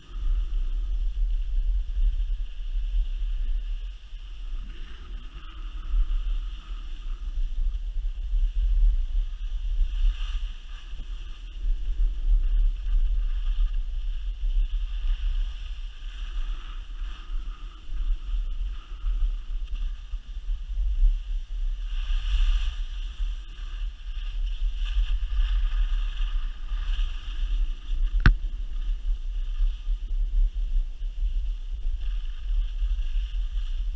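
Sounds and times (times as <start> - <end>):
skis hissing on snow: 0.0 - 7.5, 9.0 - 33.9
wind buffeting microphone: 0.0 - 33.9.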